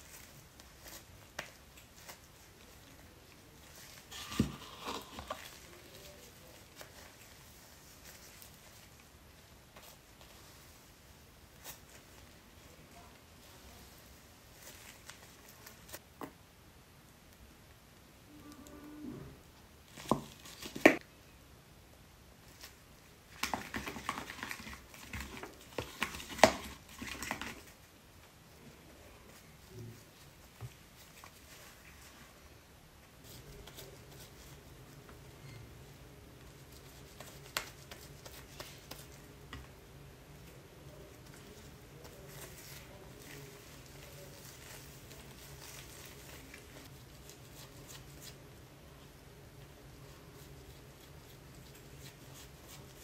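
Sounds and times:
brush stirring and scraping in bowl: 0.0s - 9.1s.

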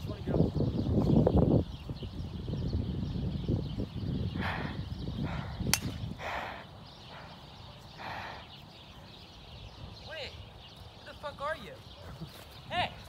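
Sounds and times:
golf club striking ball: 5.7s - 6.1s.

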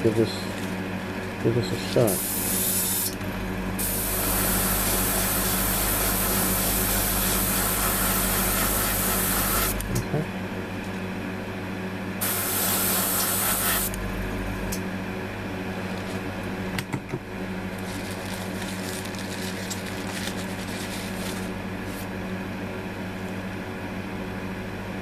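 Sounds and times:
steady low hum: 0.0s - 25.0s
airbrush spraying hiss: 12.2s - 14.0s.

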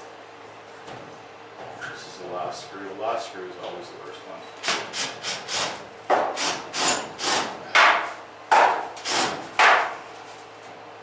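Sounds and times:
cordless drill grating bursts: 4.7s - 5.8s, 6.4s - 7.5s, 9.0s - 9.4s.

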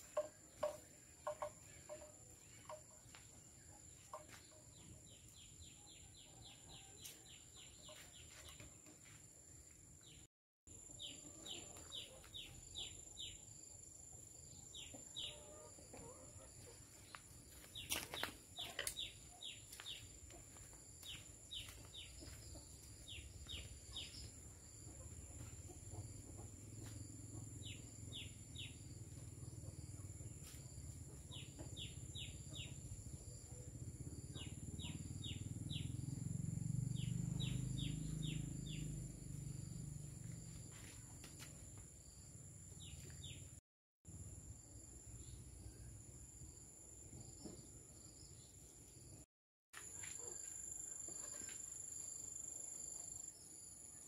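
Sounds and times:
bird chirping: 31.3s - 39.7s.

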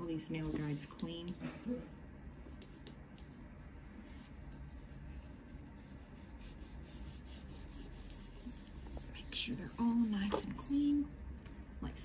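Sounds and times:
low steady hum: 0.0s - 12.0s
rubbing and wiping on silicone mat: 2.6s - 11.1s.

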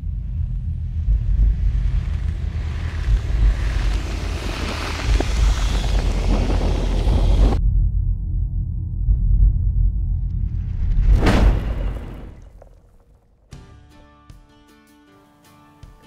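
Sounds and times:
crackles: 0.0s - 7.6s
low throbbing rumble: 0.0s - 12.8s
rushing whoosh: 1.0s - 7.6s.

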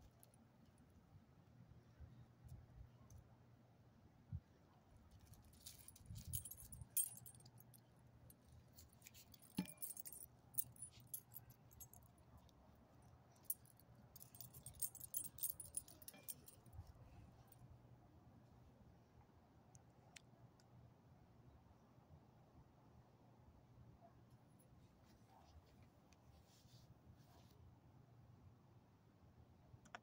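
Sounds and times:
faint metallic jingling: 5.2s - 12.2s, 13.3s - 17.2s.

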